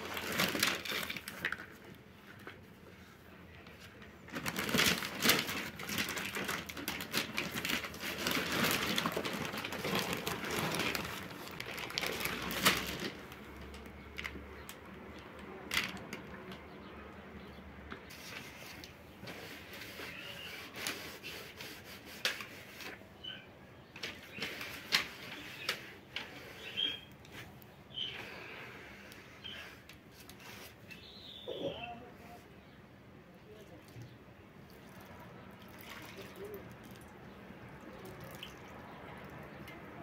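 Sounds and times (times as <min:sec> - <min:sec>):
plastic bag crinkling: 0:00.0 - 0:02.6, 0:03.8 - 0:14.4.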